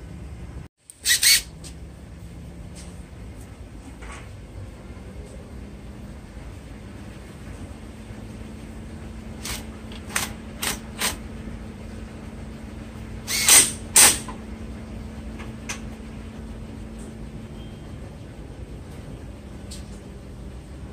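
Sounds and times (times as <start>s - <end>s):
impact wrench bursts: 0.9s - 1.5s, 9.4s - 11.2s, 13.2s - 14.4s.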